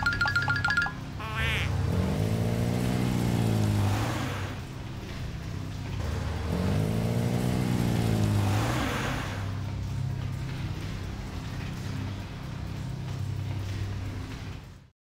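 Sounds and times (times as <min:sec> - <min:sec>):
cartoon engine revving: 0:00.0 - 0:04.5.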